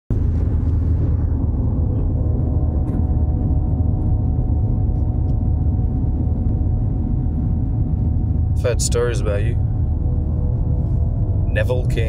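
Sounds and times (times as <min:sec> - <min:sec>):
car cabin rumble: 0:00.1 - 0:12.0.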